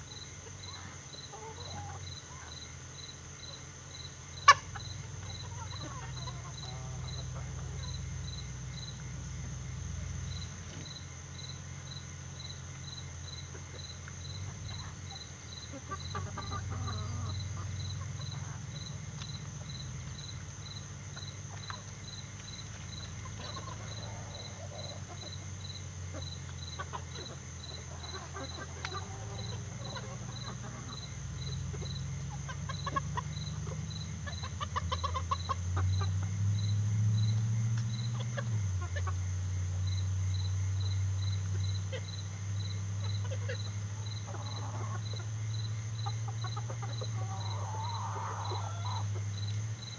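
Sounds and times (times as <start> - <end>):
chickens clucking: 0.0 - 11.6, 12.4 - 36.5, 37.8 - 39.4, 41.2 - 49.9
insect chirping: 0.0 - 49.9
steady low hum: 0.0 - 49.9.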